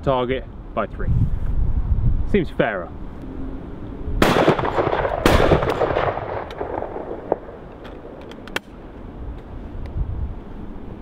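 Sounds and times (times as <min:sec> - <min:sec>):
shotgun report: 0:04.2 - 0:08.2
gun breaking open clicks: 0:07.7 - 0:08.8.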